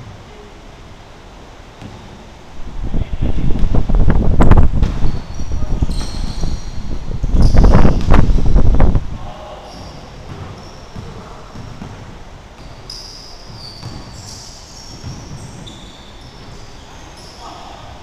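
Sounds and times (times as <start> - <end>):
basketball bouncing: 4.8 - 5.2, 7.4 - 8.8, 9.8 - 14.2, 14.8 - 16.5
sneakers squeaking on hardwood: 4.8 - 8.4, 9.7 - 17.8.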